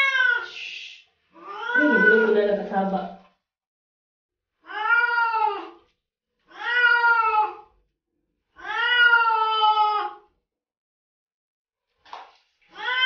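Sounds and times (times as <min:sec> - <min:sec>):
cat meowing: 0:00.0 - 0:00.6, 0:01.4 - 0:02.4, 0:04.6 - 0:05.8, 0:06.5 - 0:07.8, 0:08.6 - 0:10.3, 0:12.7 - 0:13.0.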